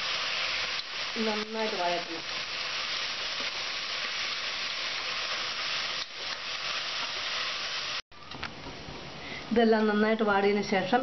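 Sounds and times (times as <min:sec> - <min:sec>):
vegetables sizzling in hot oil: 0:00.0 - 0:08.0.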